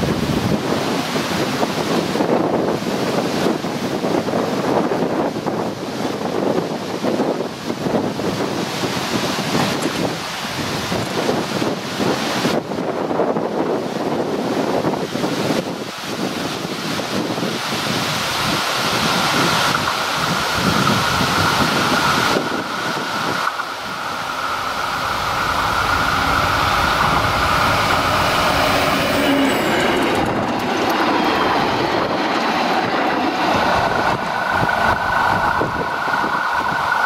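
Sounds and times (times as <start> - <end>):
train wheels rolling on rails: 0.0 - 37.0
diesel train engine: 16.8 - 37.0
high wheel squeal: 20.6 - 32.2.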